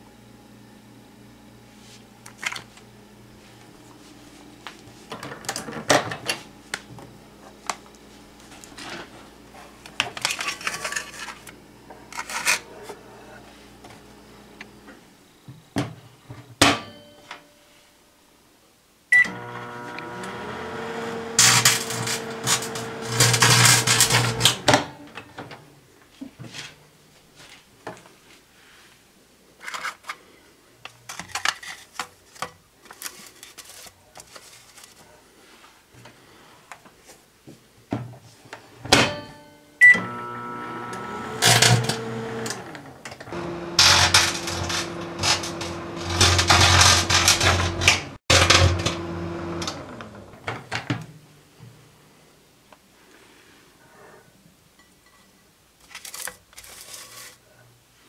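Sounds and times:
microwave oven humming: 0.0s - 10.4s, 19.1s - 25.5s, 39.0s - 50.5s.

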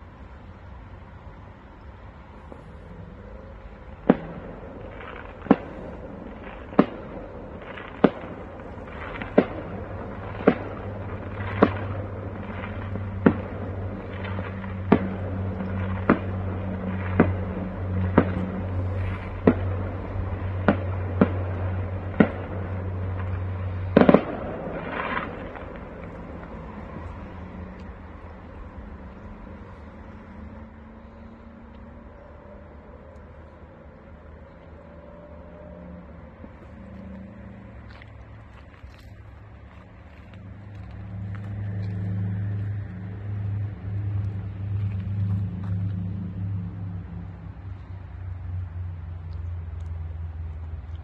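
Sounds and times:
low steady hum: 0.0s - 51.0s
fireworks crackle: 3.1s - 47.9s
fireworks bangs: 3.4s - 35.5s.

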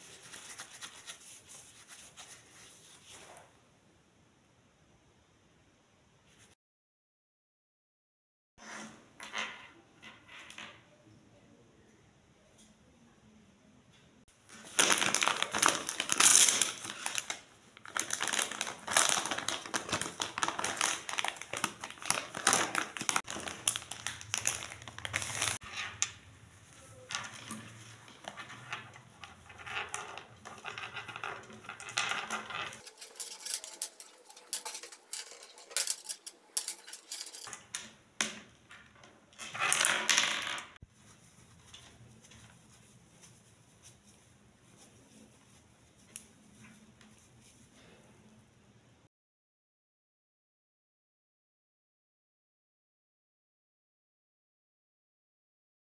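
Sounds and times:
wet wipe rubbing on cable: 0.0s - 3.4s
plastic packet crinkling: 14.5s - 25.7s, 29.5s - 37.5s.

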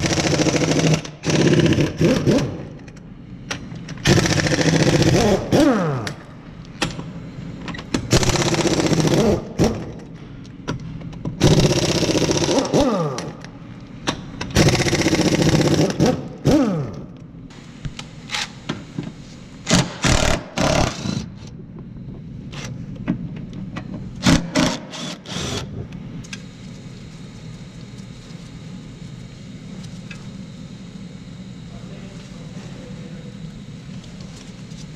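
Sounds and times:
pneumatic impact wrench hammering: 0.0s - 6.2s, 7.7s - 10.1s, 11.1s - 13.4s, 14.0s - 17.0s, 19.6s - 21.5s, 24.2s - 25.8s.

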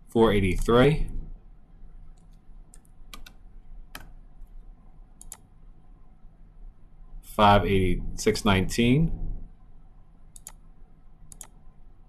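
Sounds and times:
keyboard and mouse clicks: 2.1s - 4.2s, 5.2s - 5.5s, 10.3s - 11.6s.

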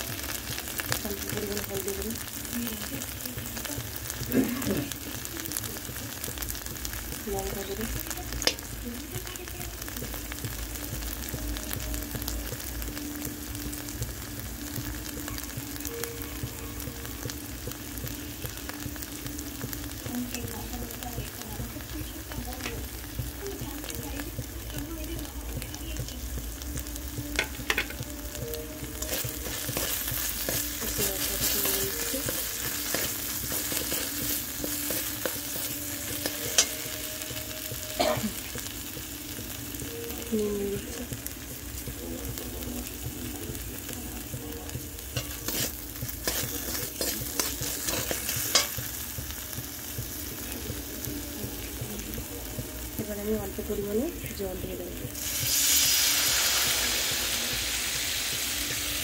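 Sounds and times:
paste sizzling in oil: 0.0s - 59.0s
metal spatula scraping a pan: 45.2s - 48.8s.

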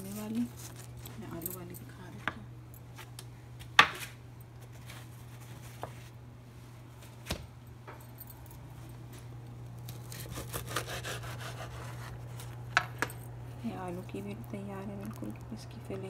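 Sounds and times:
knife sawing through bread: 10.0s - 12.4s.

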